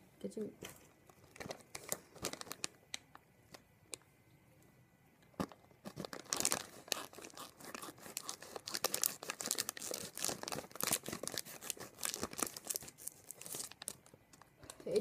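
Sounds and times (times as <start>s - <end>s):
foil bag crinkling: 0.6s - 3.6s, 5.4s - 15.0s
scissors cutting foil: 6.4s - 13.8s.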